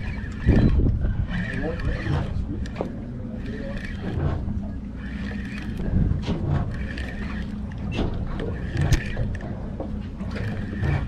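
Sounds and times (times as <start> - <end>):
wind buffeting microphone: 0.0 - 2.9, 5.7 - 6.8
fishing reel clicking and winding: 0.0 - 4.3, 5.0 - 5.9, 6.6 - 9.5, 10.3 - 11.0
water lapping against boat: 0.0 - 11.0.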